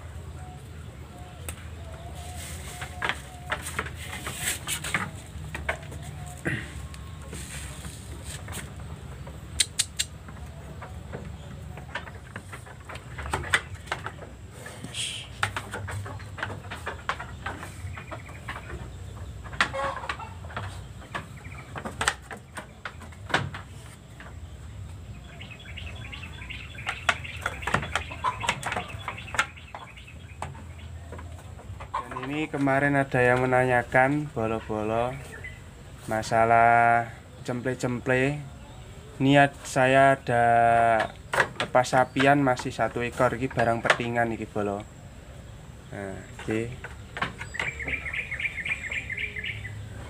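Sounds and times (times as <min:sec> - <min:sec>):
birds chirping: 0:00.0 - 0:50.0
chickens: 0:00.0 - 0:50.0
sharp clicks and knocks: 0:01.4 - 0:07.0, 0:08.1 - 0:25.0, 0:25.8 - 0:34.4, 0:40.7 - 0:44.9, 0:46.1 - 0:49.0.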